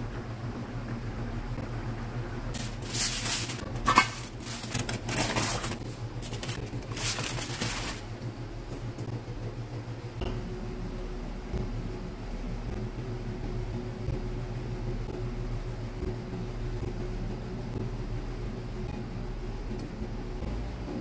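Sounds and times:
steady low hum: 0.0s - 21.0s
aluminium foil crinkling: 2.6s - 8.1s.

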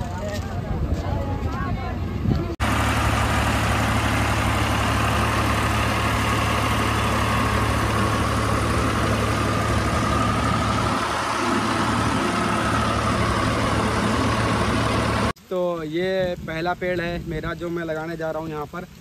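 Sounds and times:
tractor engine idling: 2.6s - 15.4s
heavy rain hiss: 2.6s - 19.0s.

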